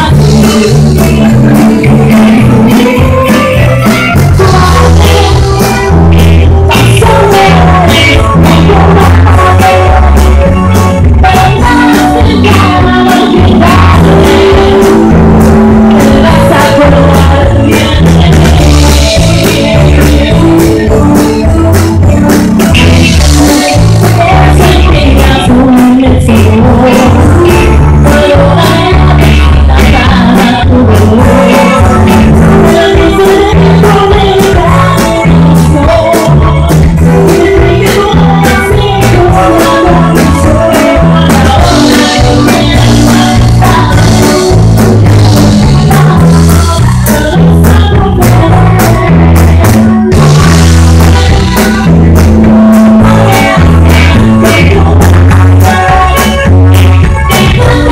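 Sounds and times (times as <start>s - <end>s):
live band playing loud music: 0.0s - 57.9s
person singing: 0.0s - 57.9s.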